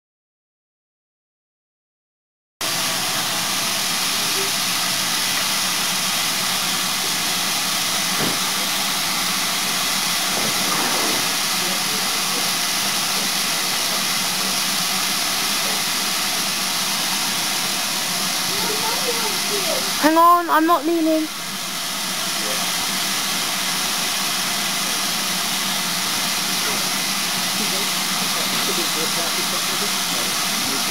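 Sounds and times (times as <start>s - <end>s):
steam hissing from train: 2.6s - 30.9s.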